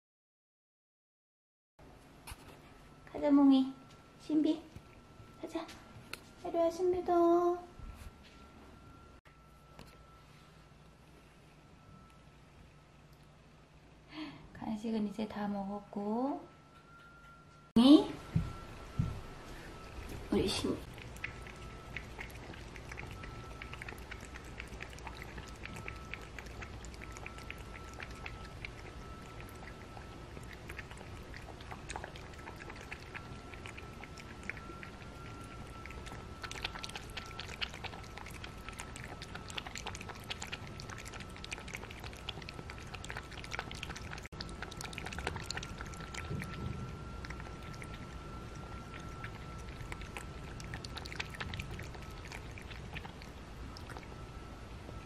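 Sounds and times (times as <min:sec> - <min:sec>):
cat lapping water: 0:19.6 - 0:54.3.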